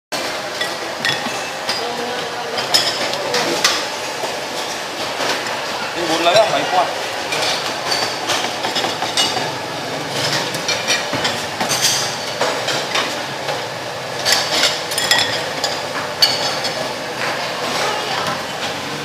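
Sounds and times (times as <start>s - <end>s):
porcelain bowls clinking: 0.5s - 3.9s, 7.3s - 13.2s, 14.1s - 18.6s.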